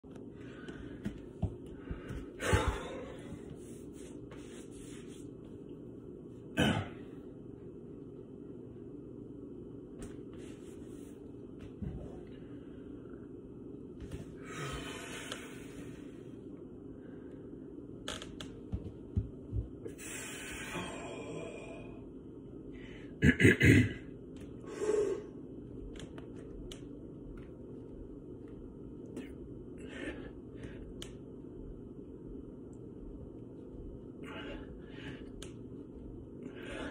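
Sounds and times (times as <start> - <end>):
man breathing hard: 0.4 - 3.9, 14.4 - 16.2, 19.9 - 22.1, 24.6 - 25.4, 34.2 - 35.5, 36.4 - 36.9
kneeling thumps on tile floor: 0.6 - 4.6, 18.4 - 19.9.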